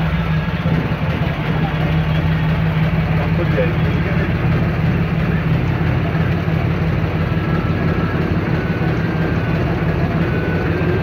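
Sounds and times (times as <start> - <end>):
motor boat engine droning: 0.0 - 11.0.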